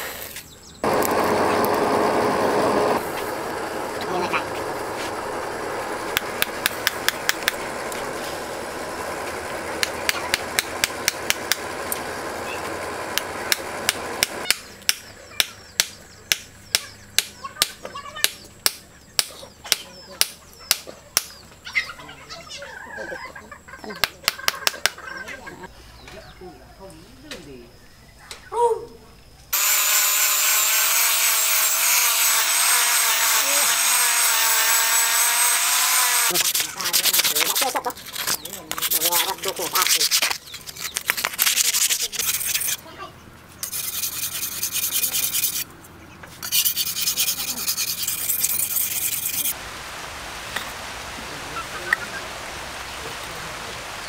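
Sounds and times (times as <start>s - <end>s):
steady background hum: 0.2s - 49.6s
angle grinder motor whine: 0.8s - 14.4s, 29.5s - 36.6s
sanding disc hiss on wood: 29.6s - 40.4s, 43.6s - 45.7s, 46.4s - 49.6s.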